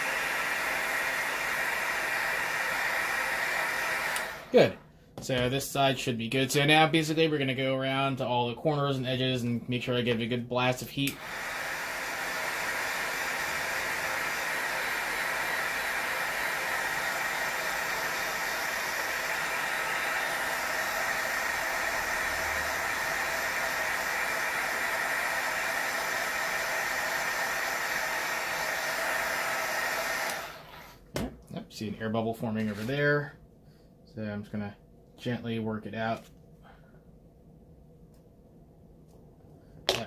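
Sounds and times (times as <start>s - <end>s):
heat gun blowing hiss: 0.0s - 4.8s, 11.0s - 31.0s.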